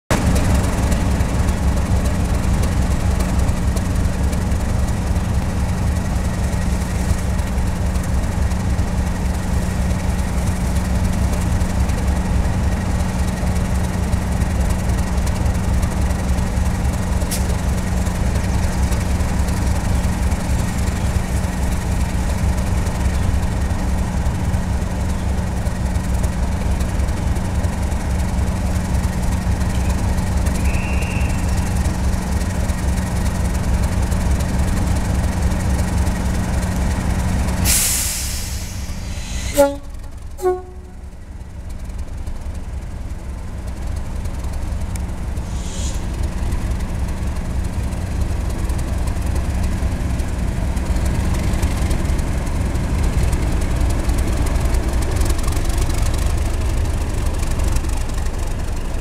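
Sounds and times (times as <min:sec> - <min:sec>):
diesel locomotives idling: 0:00.1 - 0:59.0
short high tone: 0:39.2 - 0:41.1.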